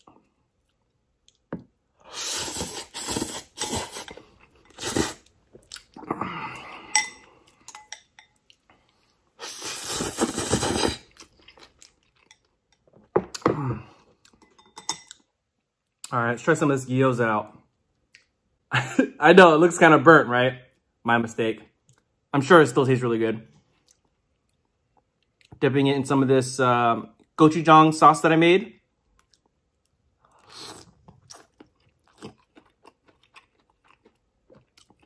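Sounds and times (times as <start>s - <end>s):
person slurping noodles: 2.0s - 5.3s, 9.4s - 11.3s, 30.4s - 31.5s
chewing: 2.6s - 6.2s, 29.2s - 29.6s, 30.2s - 35.0s.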